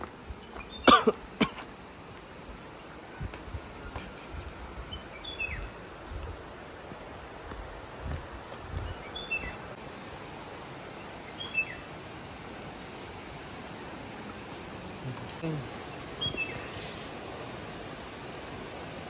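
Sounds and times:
footsteps on stone steps: 0.0 - 9.7, 12.8 - 16.6
outdoor background hiss: 0.0 - 19.0
bird chirping: 4.9 - 5.7, 8.7 - 10.2, 11.3 - 11.9, 15.9 - 17.0.

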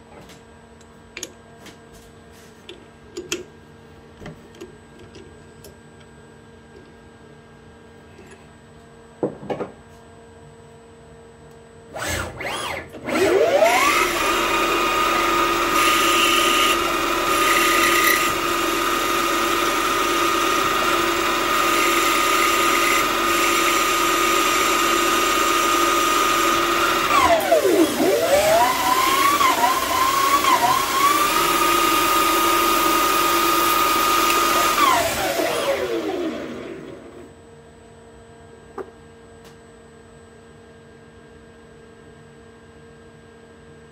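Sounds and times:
lathe spindle whine: 12.0 - 37.3.

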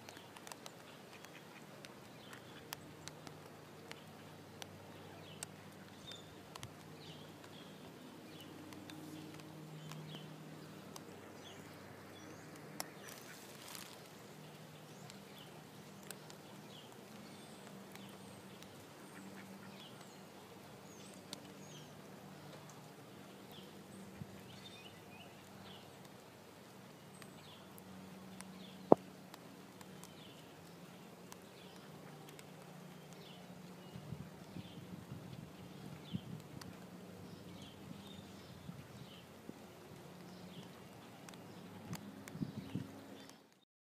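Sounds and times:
faint duck calls: 19.0 - 20.0.

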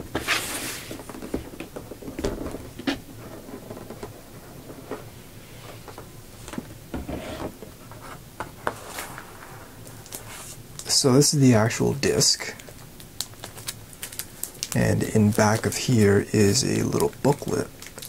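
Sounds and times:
cardboard scraping: 0.0 - 1.6, 7.0 - 10.6.

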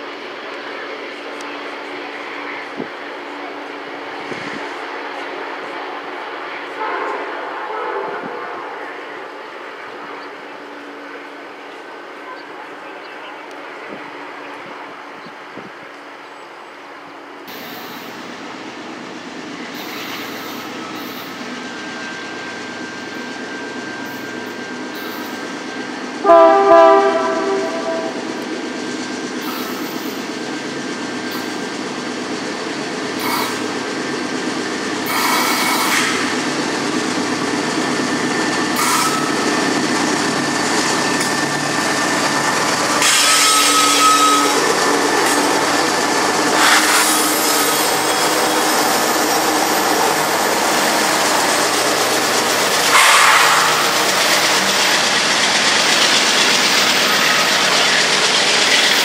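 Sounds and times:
locomotive engine and wheel noise: 0.0 - 59.0
train horn chord: 26.2 - 28.3
high wheel squeal: 27.6 - 31.6, 33.1 - 33.7, 35.0 - 36.6, 37.5 - 59.0.

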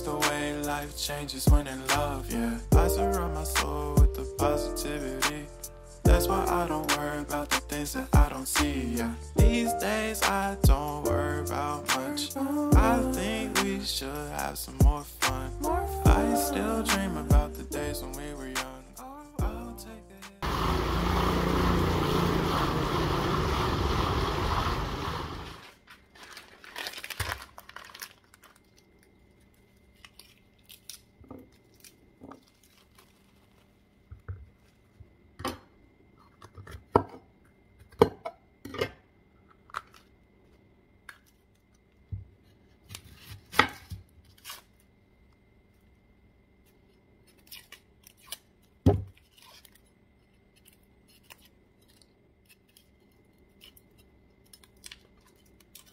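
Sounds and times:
song music: 0.0 - 24.5.

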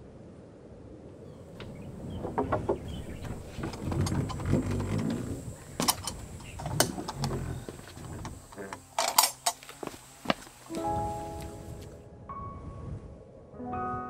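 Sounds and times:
bamboo basket creaking clicks: 1.6 - 10.8
footsteps walking: 3.2 - 12.0.

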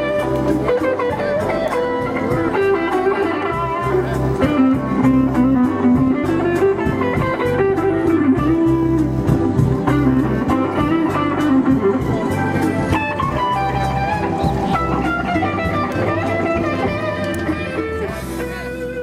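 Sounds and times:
blues electric guitar melody: 0.0 - 19.0
pulsing bass line: 0.0 - 19.0.

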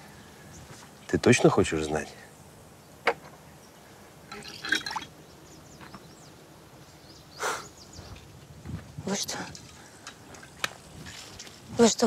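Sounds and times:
water splashing and dribbling: 4.3 - 5.1, 9.4 - 11.7.

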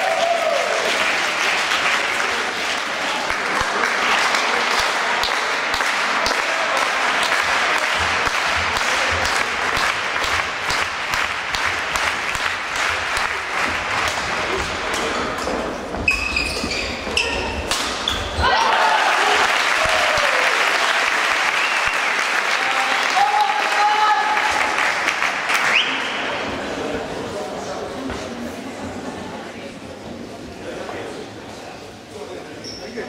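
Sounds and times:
crowd applause: 0.0 - 15.3, 18.4 - 26.6
shoes squeaking on court floor: 15.0 - 18.4, 32.6 - 33.0.

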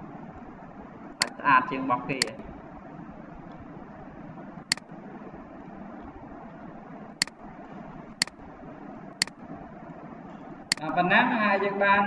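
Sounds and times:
steady background hiss: 0.0 - 12.0
computer mouse clicking: 4.7 - 4.9, 8.2 - 8.4, 9.2 - 9.4, 10.7 - 10.9.

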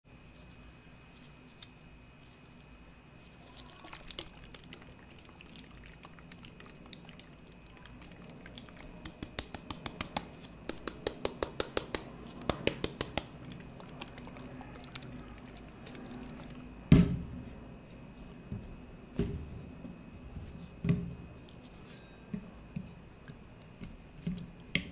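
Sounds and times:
fingers tapping plastic bottle: 9.0 - 13.3.

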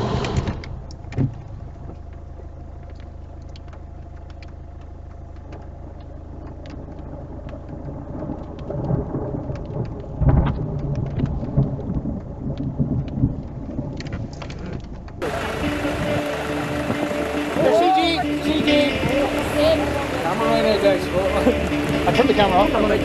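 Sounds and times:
raindrops ticking on a car: 0.1 - 23.0
thunder rolling: 7.0 - 14.3.

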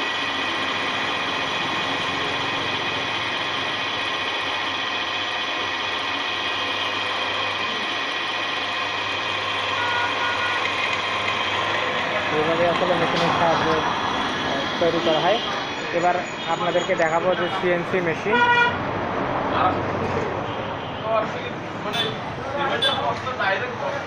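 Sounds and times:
drill press motor humming: 0.0 - 16.8
drill bit cutting metal: 0.0 - 17.6.

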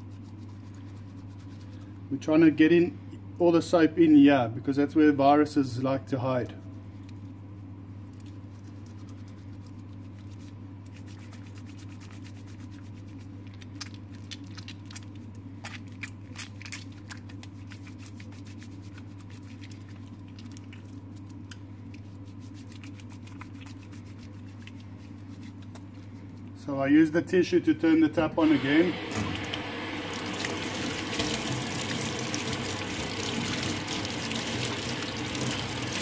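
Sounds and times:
soapy hands scrubbing: 0.0 - 2.0, 8.1 - 26.5, 28.5 - 36.0.

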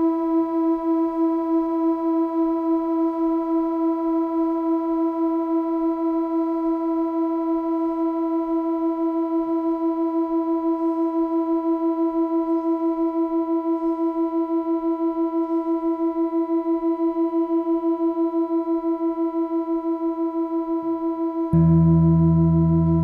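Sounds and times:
electronic drone tone throbbing: 21.6 - 23.0.

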